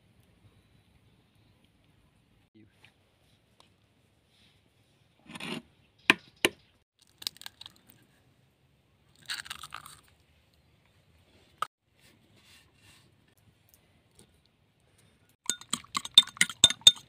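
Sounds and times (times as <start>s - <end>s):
eggshell crackling: 7.0s - 8.0s, 9.1s - 10.2s, 15.4s - 17.0s
egg tapping on bowl rim: 15.5s - 17.0s.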